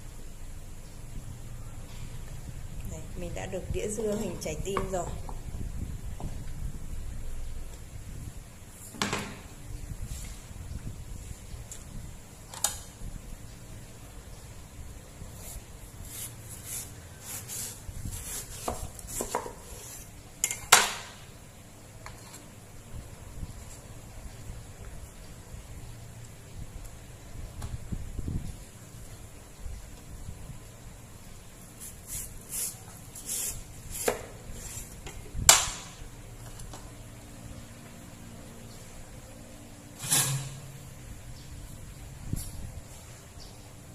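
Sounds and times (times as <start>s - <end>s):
cleaver slicing watermelon: 16.0s - 20.1s.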